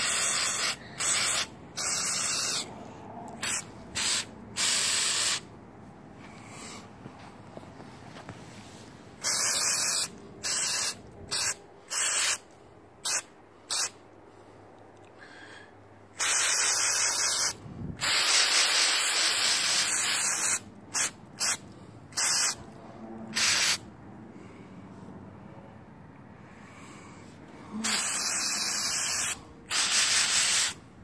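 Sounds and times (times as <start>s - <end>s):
spray can hissing: 0.0s - 2.7s, 3.4s - 5.4s, 9.2s - 12.4s, 13.0s - 14.0s, 16.2s - 21.6s, 22.2s - 22.6s, 23.4s - 23.8s, 27.8s - 30.8s.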